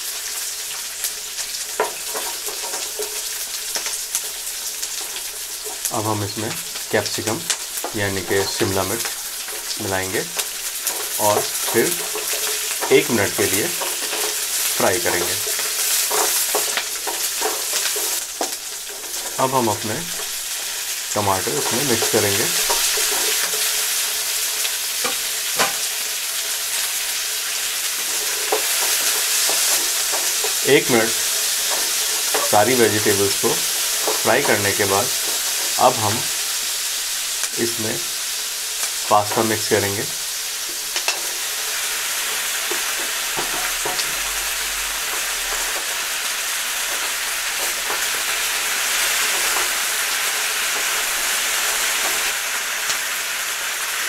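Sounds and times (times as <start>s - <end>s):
vegetables sizzling in oil: 0.0s - 54.0s
wooden spatula scraping pan: 10.4s - 24.1s, 27.4s - 36.5s.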